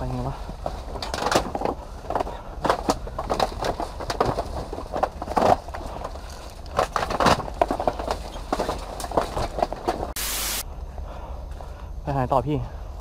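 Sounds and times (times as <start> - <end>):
wooden planks clattering underfoot: 0.0 - 10.2.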